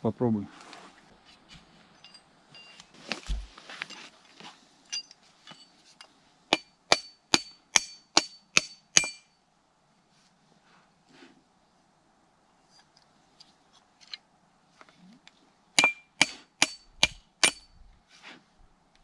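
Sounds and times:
dull thump: 0:03.1 - 0:03.6.

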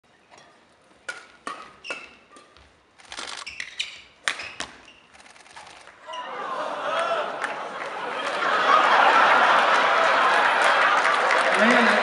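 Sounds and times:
rackets striking shuttlecock: 0:01.0 - 0:04.8
shoe squeaks on court floor: 0:01.6 - 0:05.8.

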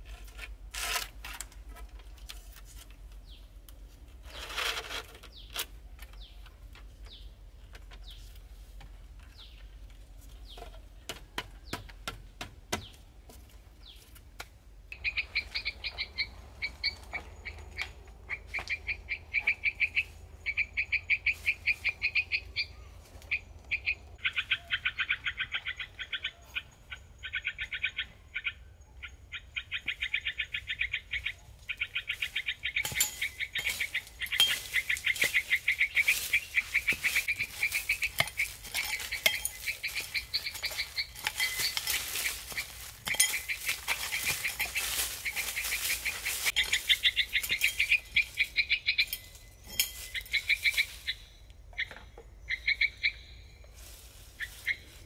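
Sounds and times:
high-pitched chirping animal calls: 0:14.9 - 0:53.6.

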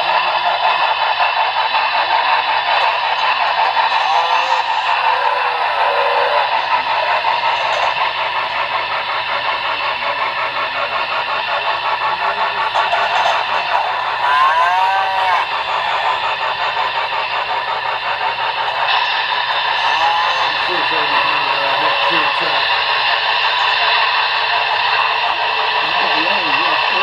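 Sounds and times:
model train rattling on track: 0:00.0 - 0:27.0.

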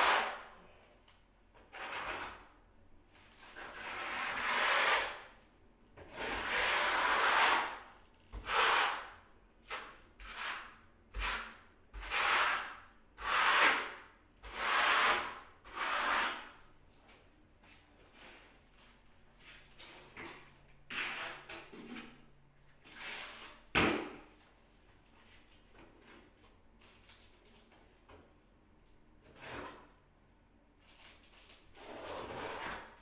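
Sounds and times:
hand tool scraping a wall: 0:00.0 - 0:00.5, 0:01.5 - 0:02.6, 0:03.2 - 0:05.4, 0:06.0 - 0:16.6, 0:19.8 - 0:24.2, 0:29.2 - 0:30.0, 0:30.9 - 0:33.0.

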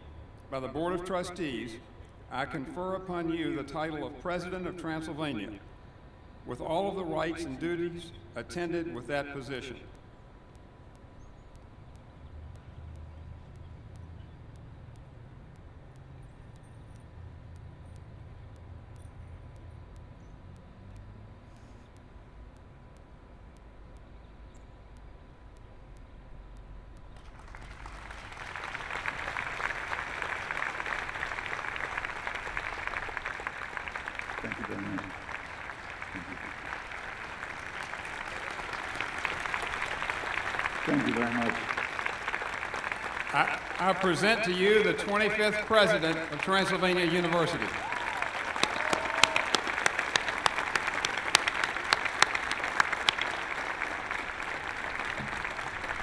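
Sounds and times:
audience applauding: 0:27.2 - 0:56.0.

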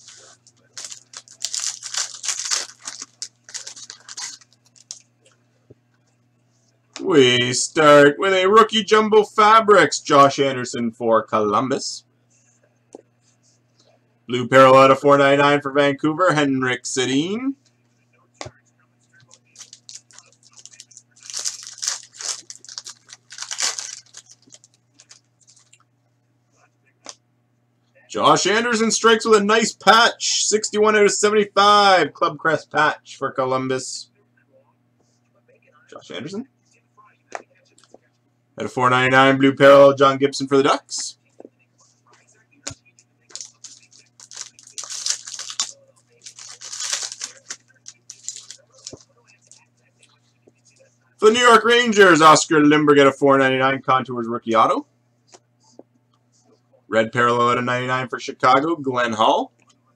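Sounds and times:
wrapper crinkling and tearing: 0:00.0 - 0:05.0, 0:19.4 - 0:25.8, 0:43.3 - 0:49.6.

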